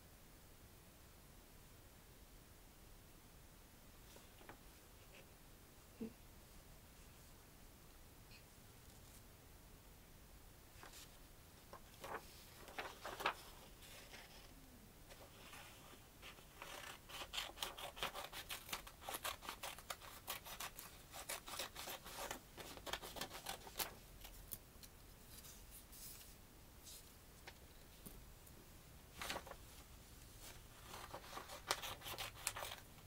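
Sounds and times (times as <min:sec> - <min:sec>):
paper rustling: 0:10.7 - 0:24.6, 0:29.1 - 0:33.0
scissors snipping paper: 0:16.5 - 0:24.6, 0:30.9 - 0:32.9.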